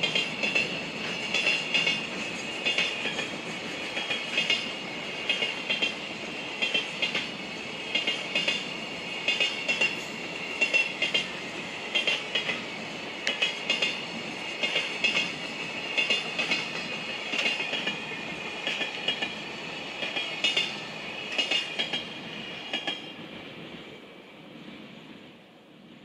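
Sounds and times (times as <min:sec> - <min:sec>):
rail ring: 0:00.0 - 0:06.0, 0:06.6 - 0:12.6
wheels clacking over rail joints: 0:00.0 - 0:19.4, 0:20.0 - 0:23.1
train rumble: 0:00.0 - 0:26.0.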